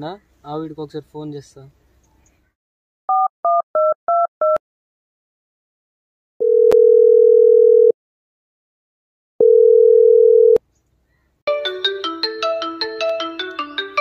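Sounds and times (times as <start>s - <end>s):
phone call ringing beeps: 6.4s - 8.0s, 9.4s - 10.6s
phone ringtone melody: 9.4s - 10.6s, 11.5s - 14.0s.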